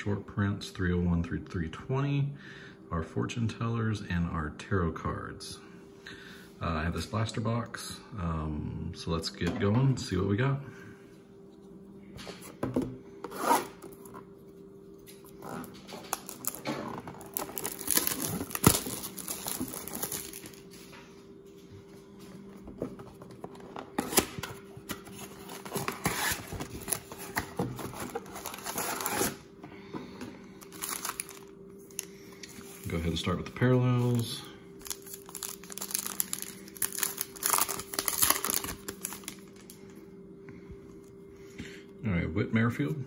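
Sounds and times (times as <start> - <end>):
faint steady hum: 0.0 - 43.0
foil card packs handled: 15.2 - 20.9, 22.6 - 29.4, 30.1 - 39.8
plastic wrap and cardboard tearing: 15.4 - 20.7, 23.9 - 29.4, 30.6 - 32.1, 34.8 - 39.7.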